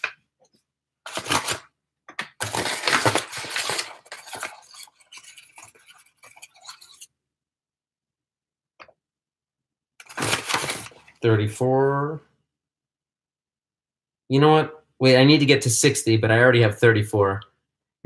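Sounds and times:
paper bag crinkling: 2.4s - 7.0s, 10.0s - 11.1s.

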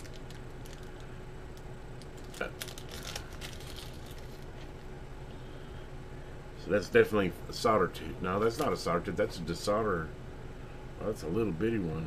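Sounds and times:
plastic bag crinkling: 0.0s - 1.1s, 2.0s - 4.9s
low hum: 0.0s - 12.0s.

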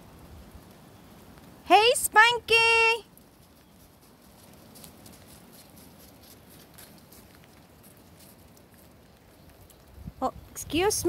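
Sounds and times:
footsteps on icy snow and leaves: 3.1s - 10.0s.

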